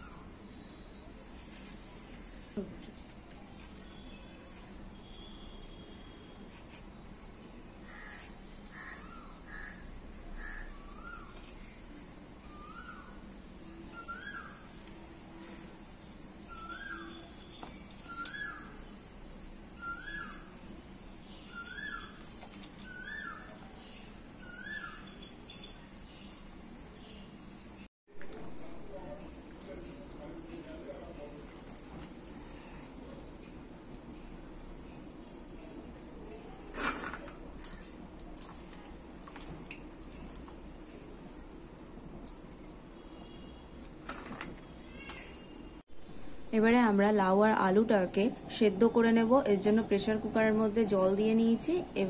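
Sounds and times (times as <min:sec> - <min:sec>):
water sloshing in bowl: 0:28.1 - 0:34.1, 0:36.8 - 0:44.8.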